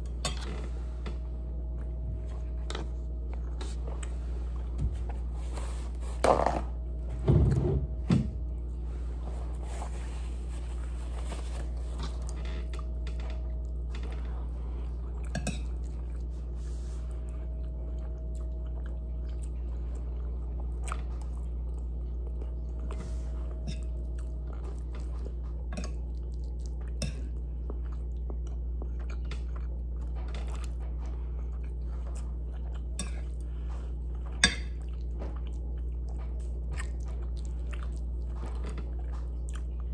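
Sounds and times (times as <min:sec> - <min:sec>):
steady low hum: 0:00.0 - 0:39.9
chewing and mouth smacking: 0:17.2 - 0:39.9.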